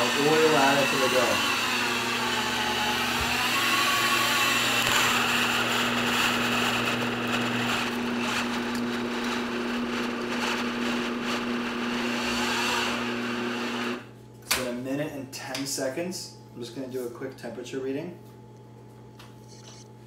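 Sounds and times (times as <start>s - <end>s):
mixer motor humming: 0.0s - 14.1s, 19.3s - 20.0s.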